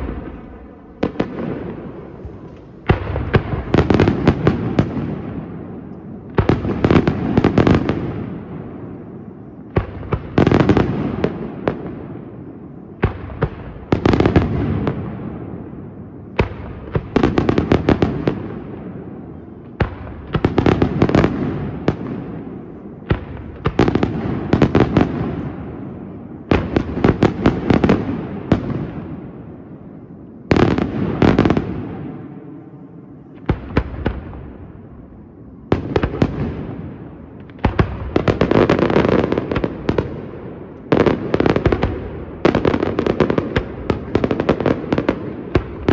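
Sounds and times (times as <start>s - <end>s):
sharp bangs and crackles: 0.0s - 8.8s, 9.7s - 15.6s, 19.7s - 29.4s.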